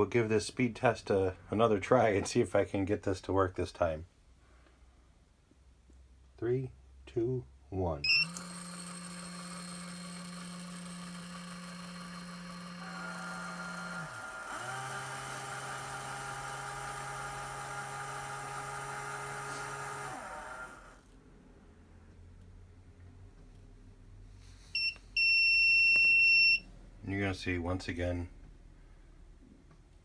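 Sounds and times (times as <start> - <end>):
high-pitched motor whine: 8.1 - 21.0
powder dispenser motors whirring: 8.1 - 21.1.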